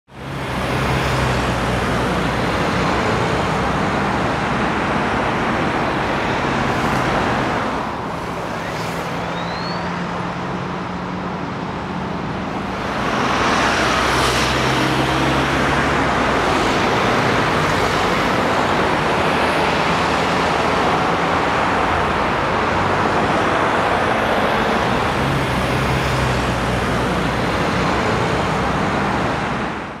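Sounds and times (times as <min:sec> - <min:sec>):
road traffic passing: 0:00.1 - 0:30.0.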